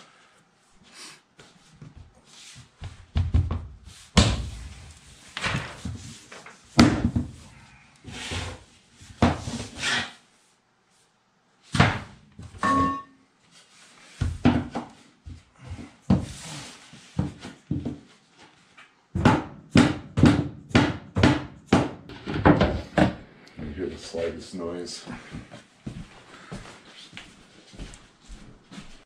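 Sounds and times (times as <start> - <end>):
flooring planks knocking and thumping: 2.8 - 4.8, 5.4 - 7.4, 9.1 - 9.8, 11.7 - 12.9, 14.2 - 16.4, 17.1 - 18.1, 19.1 - 23.2.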